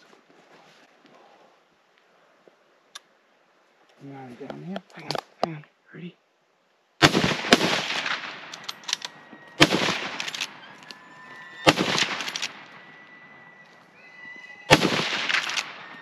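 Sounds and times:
rifle shots echoing: 7.0s - 13.6s, 14.6s - 16.0s.

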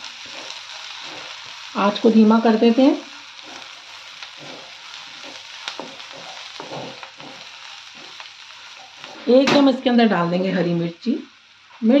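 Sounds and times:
vegetables sizzling in pan: 0.0s - 12.0s
wooden spatula scraping pan: 3.4s - 9.7s.

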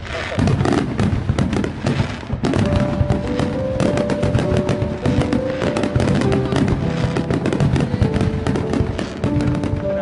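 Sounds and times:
fireworks bursting and crackling: 0.0s - 10.0s
melody playing: 2.4s - 10.0s.

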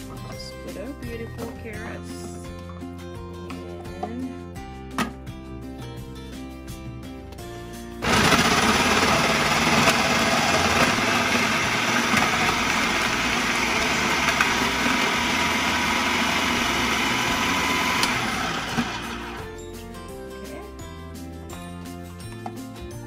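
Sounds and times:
carrots being shredded: 8.0s - 19.4s
food processor motor running: 8.0s - 19.5s.

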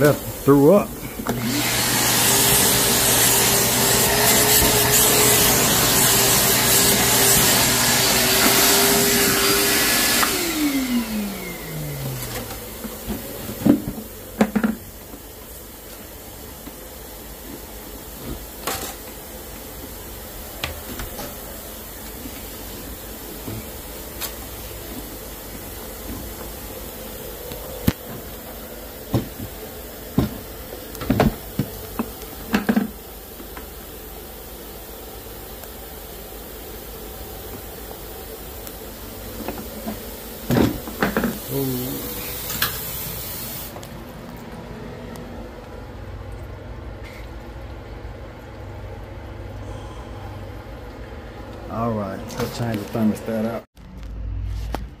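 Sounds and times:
shop vacuum running: 0.0s - 53.7s
motor winding down whine: 1.3s - 12.6s.

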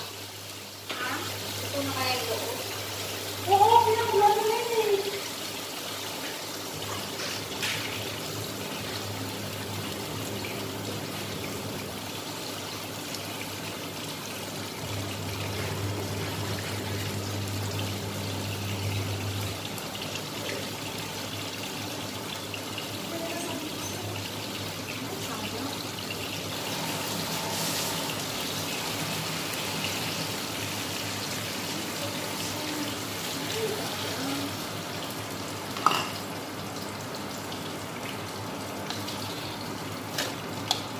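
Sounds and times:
food sizzling in a wok: 0.0s - 40.9s
water poured into a wok: 10.0s - 35.0s.

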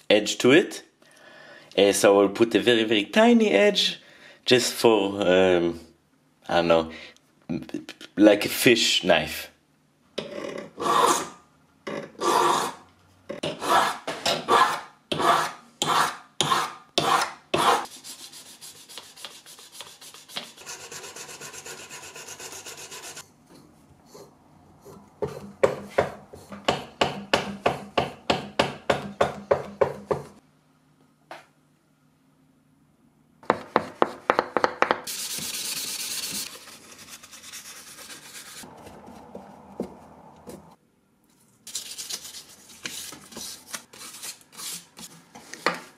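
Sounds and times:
file scraping metal blade: 10.8s - 11.4s, 13.4s - 23.2s.

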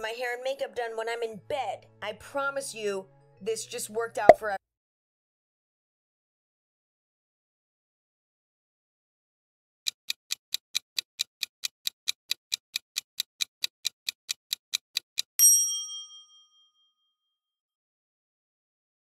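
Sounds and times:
clock ticking fast: 9.9s - 15.4s.

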